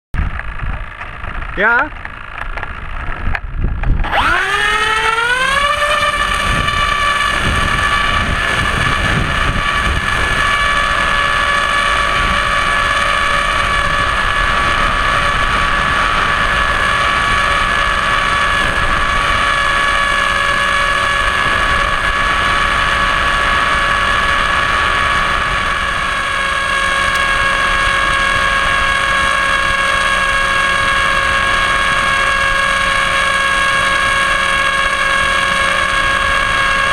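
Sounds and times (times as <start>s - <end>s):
electric motor propeller whine: 0.2s - 36.9s.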